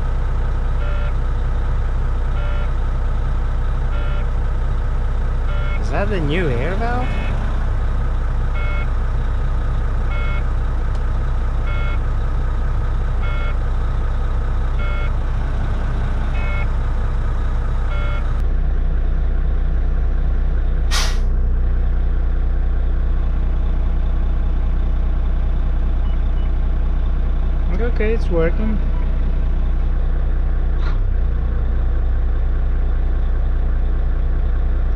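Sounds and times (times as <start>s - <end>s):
diesel engine idling: 0.0s - 34.9s
dashboard warning beeping: 5.5s - 7.6s, 8.6s - 8.9s, 10.1s - 10.5s, 11.7s - 12.0s, 13.2s - 13.6s, 14.8s - 15.2s, 16.2s - 16.8s, 17.9s - 18.4s, 28.4s - 29.2s
compressed air hiss: 20.9s - 21.3s.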